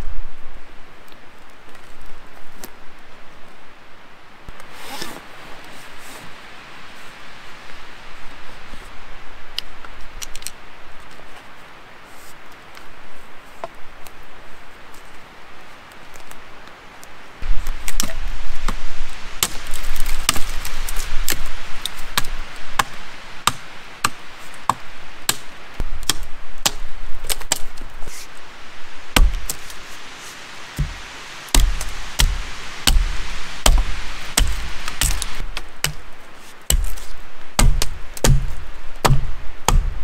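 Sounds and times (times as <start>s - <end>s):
dry wood being chopped: 19.4s - 20.6s, 22.2s - 27.8s, 29.2s - 29.6s, 30.8s - 36.1s, 36.7s - 40.0s.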